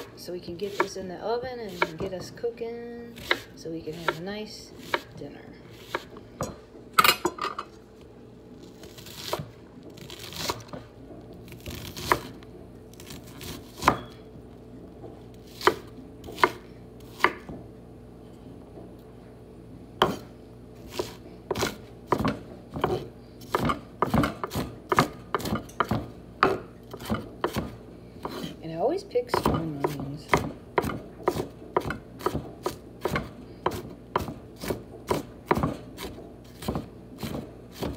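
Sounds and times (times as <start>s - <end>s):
knife chopping on wooden board: 1.7s - 2.4s, 3.2s - 4.2s, 4.8s - 5.1s, 5.8s - 6.6s, 9.0s - 10.8s, 11.5s - 12.4s, 13.0s - 14.2s, 15.4s - 17.6s, 20.0s - 20.3s, 20.9s - 28.6s, 29.2s - 37.9s.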